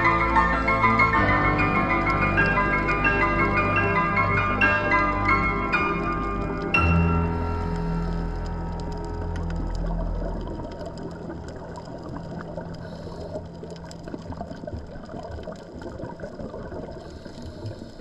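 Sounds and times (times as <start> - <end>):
background music: 0.0 - 13.1
underwater watery rush: 0.0 - 18.0
sharp underwater clicks and crackles: 6.0 - 18.0.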